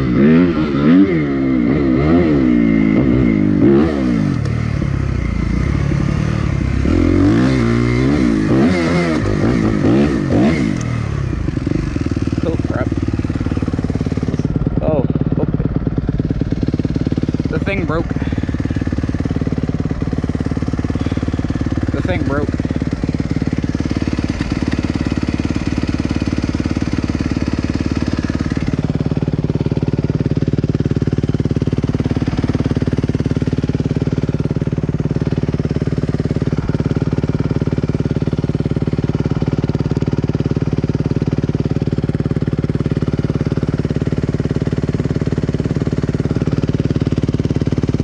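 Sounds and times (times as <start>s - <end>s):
dirt bike engine idling: 0.0s - 48.0s.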